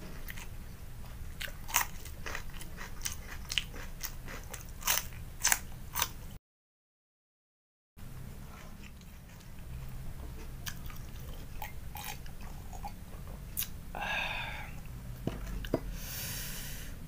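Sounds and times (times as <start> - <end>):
man chewing and swallowing: 0.0 - 6.2, 8.4 - 15.9
faint hum: 0.0 - 6.4, 8.0 - 17.0
breathy sound: 13.9 - 14.9.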